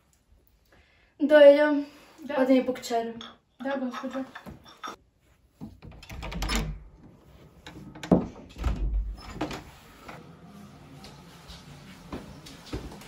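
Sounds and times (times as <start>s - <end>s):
door handle and latch clicking: 5.8s - 6.9s.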